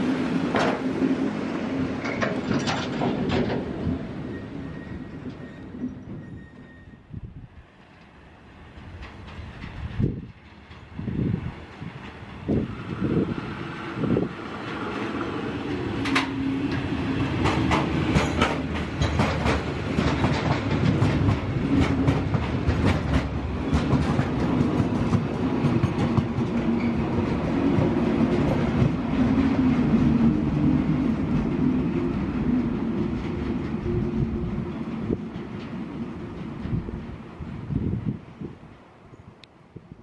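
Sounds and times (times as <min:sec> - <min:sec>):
diesel locomotive engine: 0:00.0 - 0:40.0
wagon wheels clacking over rail joints: 0:02.0 - 0:03.8, 0:08.0 - 0:10.9, 0:15.6 - 0:29.0.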